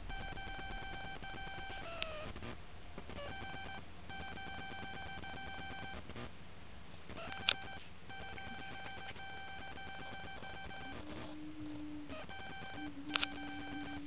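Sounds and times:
electronic beep: 0.0s - 2.4s, 3.1s - 6.0s, 7.2s - 11.3s, 12.1s - 14.0s.

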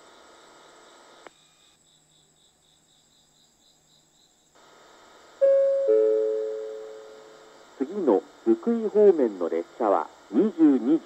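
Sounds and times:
crickets chirping: 0.0s - 11.0s
station announcement chime: 5.4s - 7.1s.

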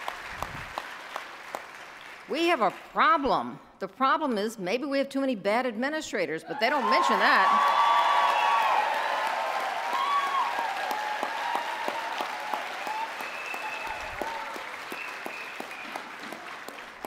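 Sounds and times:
audience applauding: 0.0s - 2.3s, 6.7s - 17.0s
people cheering: 6.5s - 17.0s.

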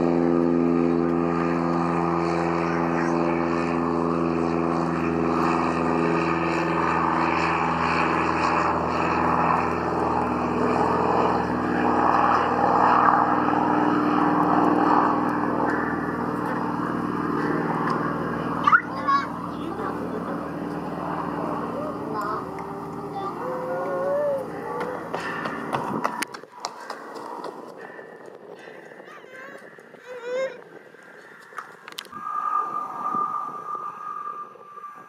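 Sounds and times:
propeller plane engine drone: 0.0s - 35.0s.

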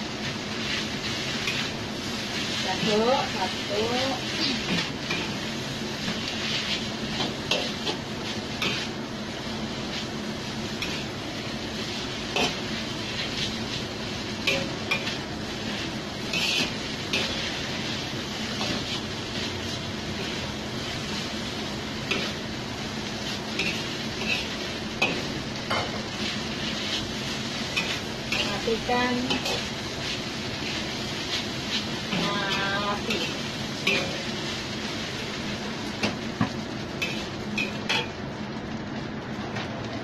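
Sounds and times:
noodles sizzling in a wok: 0.0s - 40.0s
metal spatula scraping a pan: 16.3s - 17.6s, 23.6s - 30.2s, 31.3s - 34.3s.

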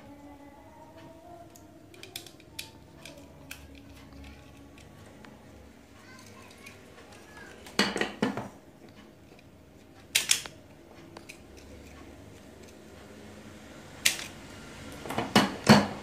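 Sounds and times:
faint handling noise: 0.7s - 12.8s
wire stripper jaws clicking: 1.9s - 4.9s, 14.0s - 14.4s.

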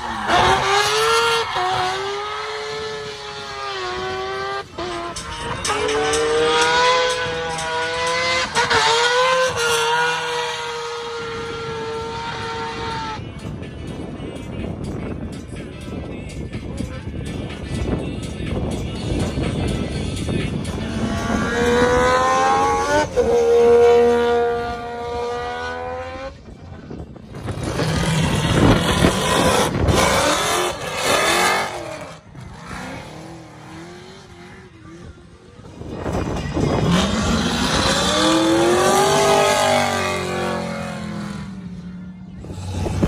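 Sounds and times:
car engines revving hard: 0.0s - 13.5s, 19.2s - 26.6s, 27.2s - 43.0s.

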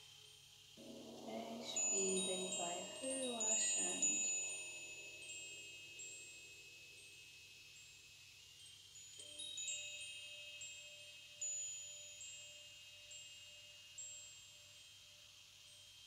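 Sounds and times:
steady lower tone: 0.8s - 4.3s
chime tones ringing: 0.8s - 5.8s.

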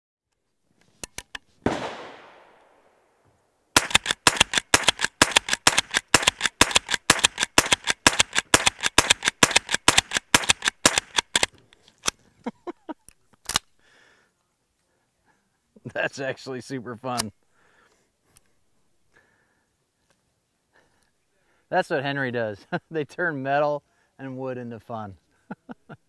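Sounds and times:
loud gunshot bang: 1.6s - 2.9s
rifle shots cracking: 1.6s - 3.2s, 3.8s - 11.5s
gun action clicks: 3.8s - 12.2s, 13.1s - 13.7s.

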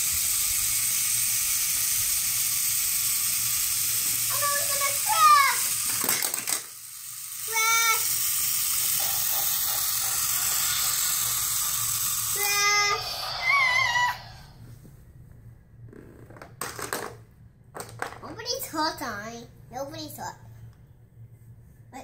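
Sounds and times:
toy train hissing sound effect: 0.0s - 14.6s
clatter of plastic pieces: 5.7s - 6.8s.

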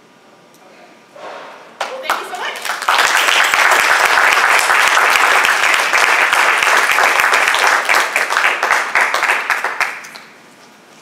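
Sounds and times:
small audience applauding: 1.8s - 10.3s.

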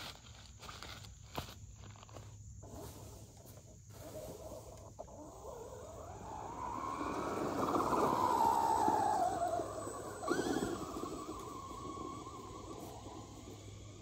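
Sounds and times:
electric motor whining: 4.1s - 14.0s.

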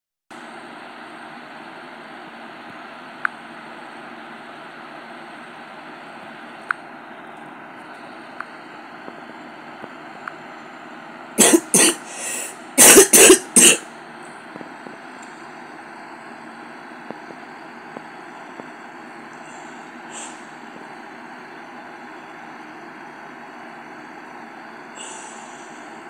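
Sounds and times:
person coughing: 11.4s - 13.9s.

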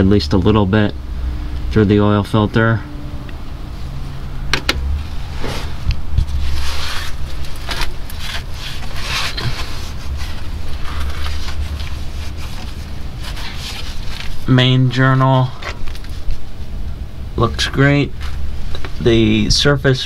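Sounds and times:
low rumbling handling noise: 0.0s - 20.0s
rag rustling and scraping on metal: 5.0s - 14.5s.

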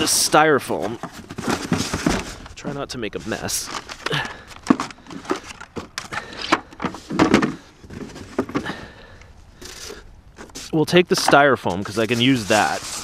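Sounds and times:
trash handling knocks and rustles: 0.0s - 2.7s, 3.3s - 9.0s.

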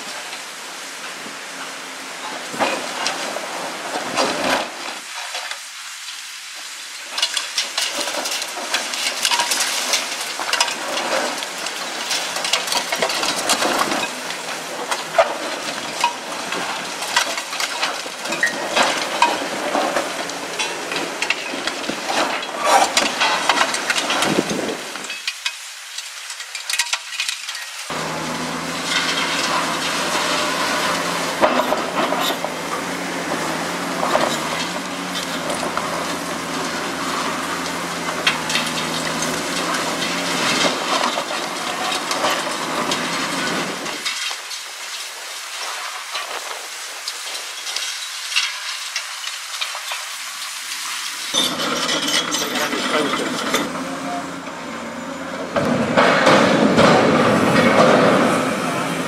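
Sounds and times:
concrete crunching and crackling: 7.0s - 59.0s
falling debris knocks: 7.2s - 50.2s, 55.4s - 59.0s
diesel engine running: 27.9s - 44.1s, 51.4s - 59.0s.

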